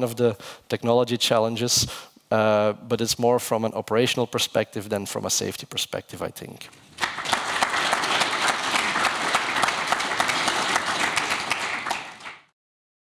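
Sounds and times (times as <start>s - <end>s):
audience applauding: 6.9s - 12.5s.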